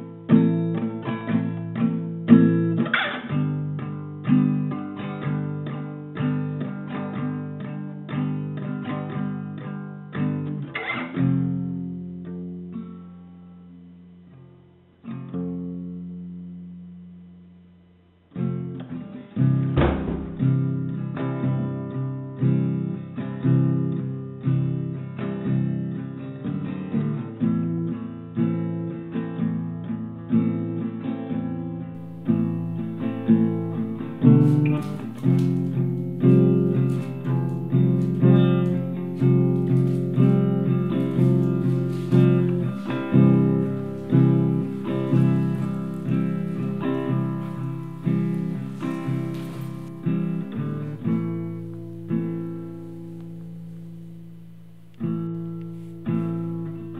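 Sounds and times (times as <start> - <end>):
acoustic guitar picking: 19.1 - 24.5, 32.0 - 56.9.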